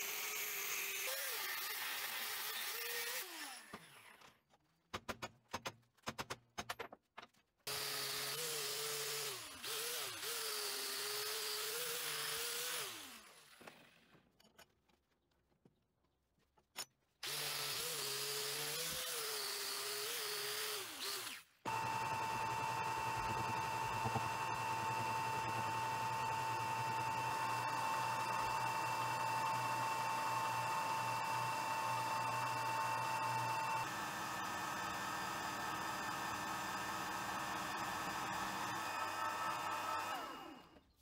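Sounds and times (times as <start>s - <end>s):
angle grinder cutting steel tube: 0.0s - 3.9s
sharp clicks and knocks: 4.8s - 7.6s.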